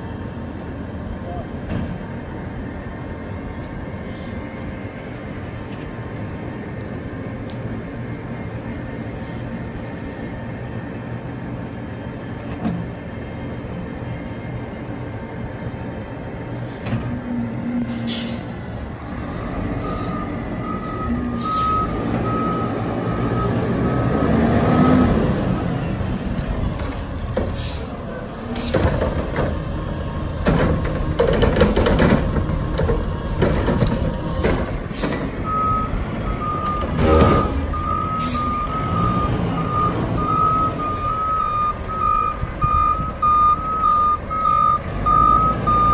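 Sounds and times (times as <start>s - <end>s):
garbage truck diesel engine: 0.0s - 45.9s
air brakes hissing: 16.6s - 19.0s, 21.1s - 21.9s, 26.4s - 29.0s, 34.2s - 35.5s, 37.0s - 38.7s, 43.6s - 44.6s
reversing alarm beeping: 19.8s - 24.1s, 35.4s - 45.9s.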